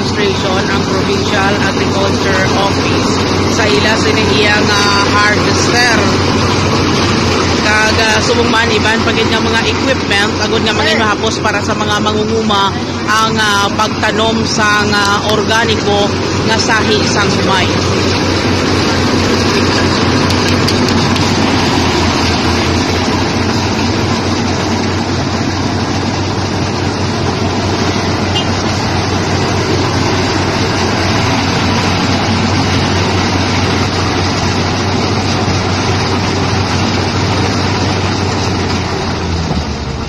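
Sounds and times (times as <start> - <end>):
combine harvester running: 0.0 - 40.0.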